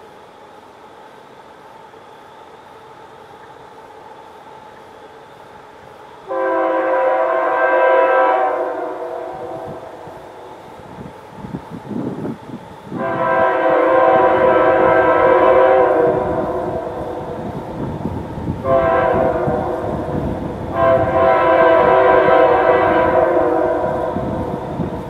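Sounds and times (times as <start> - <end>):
low rumble of train: 0.0 - 25.0
train air horn blasts: 6.3 - 10.4, 12.9 - 17.4, 18.6 - 24.6.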